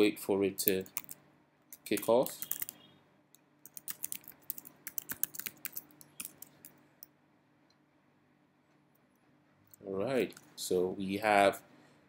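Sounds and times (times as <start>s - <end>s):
keyboard typing: 0.7s - 2.8s, 3.6s - 6.8s.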